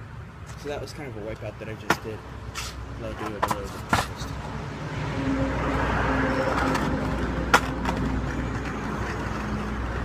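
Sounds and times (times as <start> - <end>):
wheels rolling over paving stones: 6.3 - 10.0.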